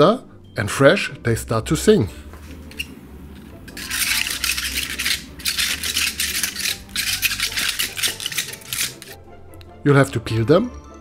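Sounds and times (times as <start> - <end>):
asparagus spears squeaking: 2.6 - 3.0, 3.6 - 9.2.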